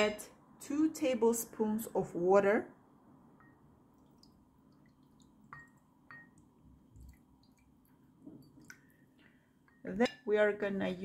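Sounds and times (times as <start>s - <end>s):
faint water drips: 3.2s - 10.3s.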